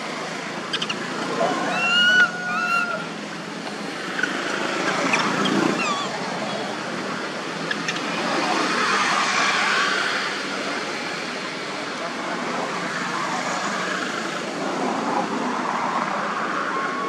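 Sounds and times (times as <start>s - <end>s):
rushing background noise: 0.0s - 17.0s
baby monkey squeaks: 0.7s - 3.1s, 5.1s - 6.6s.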